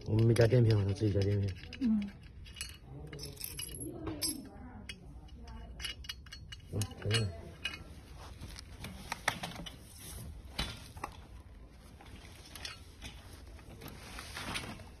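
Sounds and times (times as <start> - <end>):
steel bars clicking and knocking: 0.0 - 8.0.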